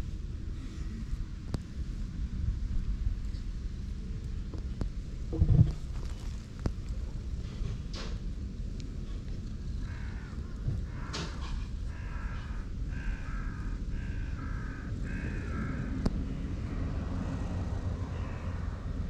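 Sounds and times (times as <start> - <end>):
wind rumble on microphone: 0.0 - 19.0
crow cawing: 9.8 - 16.0, 18.1 - 18.7.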